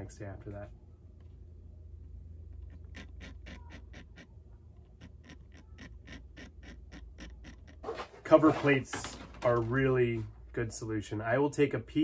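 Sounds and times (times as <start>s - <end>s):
blade scraping plastic: 2.6s - 8.7s.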